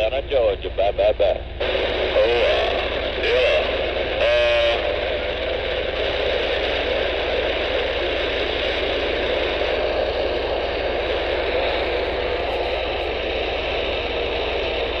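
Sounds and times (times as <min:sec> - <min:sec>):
radio static hiss: 0:00.0 - 0:15.0.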